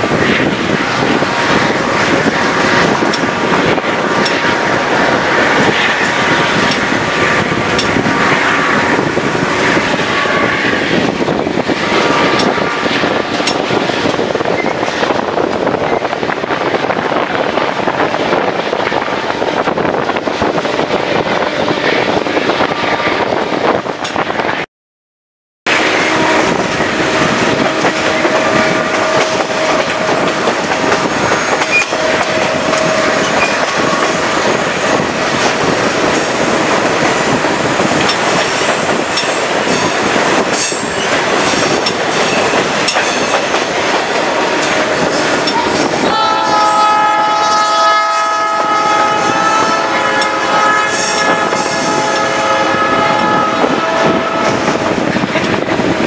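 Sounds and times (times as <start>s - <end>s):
train wheels rumbling and clacking: 0.0s - 24.7s, 25.7s - 56.0s
locomotive air horn chord: 25.7s - 31.1s, 44.2s - 54.9s.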